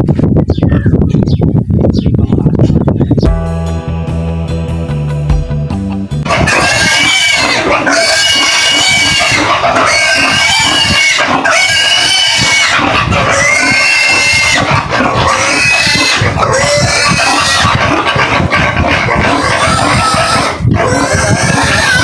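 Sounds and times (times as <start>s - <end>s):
pig squealing: 6.3s - 22.0s.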